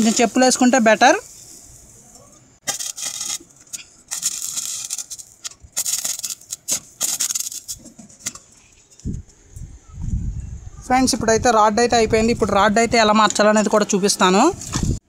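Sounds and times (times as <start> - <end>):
welding arc crackling: 0.0 - 8.6.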